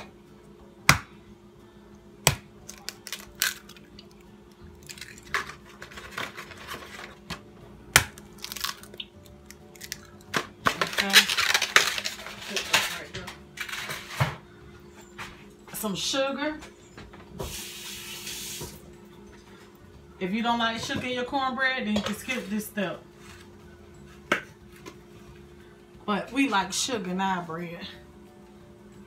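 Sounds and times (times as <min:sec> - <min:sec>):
eggs cracking into bowl: 0:02.3 - 0:06.4, 0:07.3 - 0:12.2.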